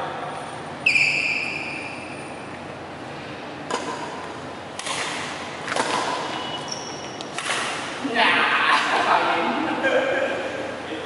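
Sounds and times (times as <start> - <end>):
racket hitting shuttlecock: 3.6 - 8.0.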